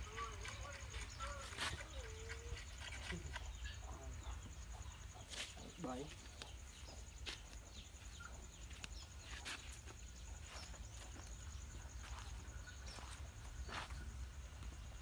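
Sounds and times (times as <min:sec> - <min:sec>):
pulsing insect trill: 0:00.0 - 0:15.0.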